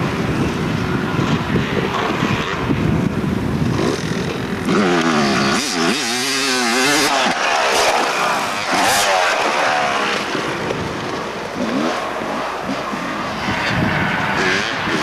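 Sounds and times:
dirt bike engine revving: 3.6s - 15.0s.

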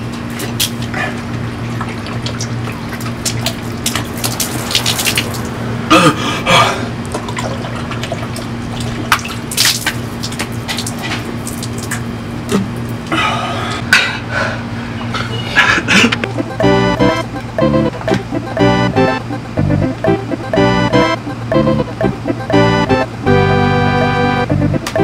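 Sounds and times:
water splashing and dripping: 1.6s - 5.6s, 7.1s - 12.1s
steady low hum: 11.8s - 25.0s.

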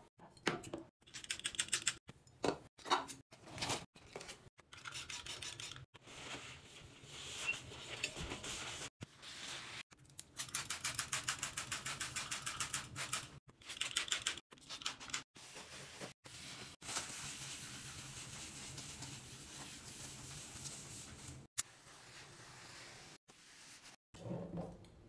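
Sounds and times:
paper towel wiping surface: 6.0s - 9.8s, 15.4s - 24.0s.

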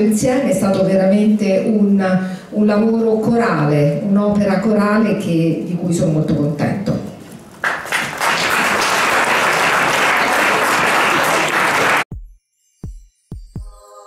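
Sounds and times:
audience applauding: 7.6s - 12.1s.

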